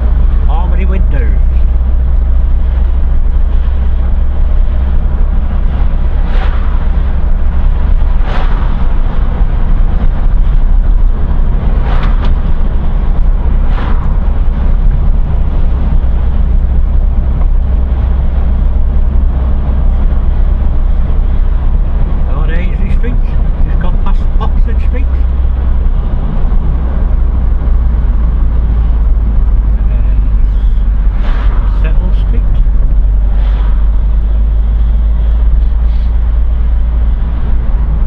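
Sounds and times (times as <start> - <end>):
car engine and road rumble: 0.0 - 38.0
short whooshes: 6.2 - 7.0, 8.0 - 9.1, 13.5 - 14.2, 30.5 - 31.8, 32.9 - 34.9.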